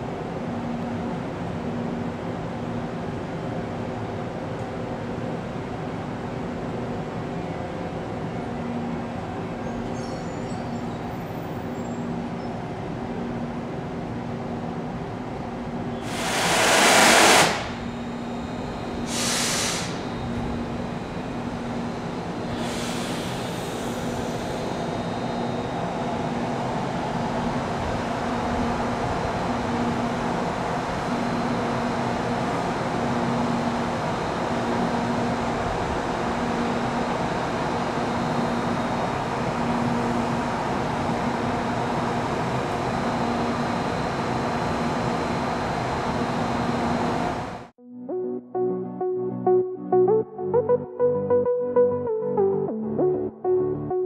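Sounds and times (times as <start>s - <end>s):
electric locomotive humming: 0.0s - 47.7s
air hissing: 16.0s - 17.8s, 19.0s - 20.0s, 22.5s - 24.8s.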